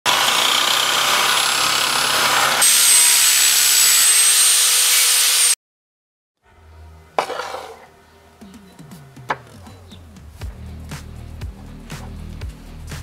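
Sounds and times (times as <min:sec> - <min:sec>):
angle grinder cutting metal: 0:00.1 - 0:05.6
electric drill running grinder: 0:00.1 - 0:05.6.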